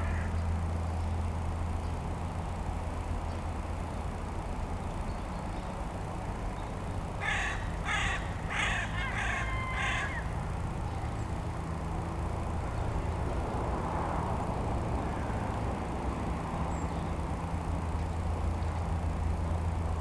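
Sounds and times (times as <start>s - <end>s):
crow cawing: 0.0s - 0.3s, 7.2s - 10.4s
steady low rumble: 0.0s - 20.0s.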